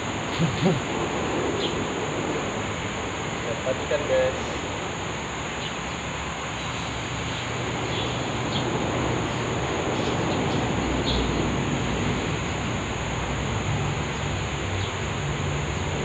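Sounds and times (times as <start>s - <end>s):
high insect drone: 0.0s - 16.0s.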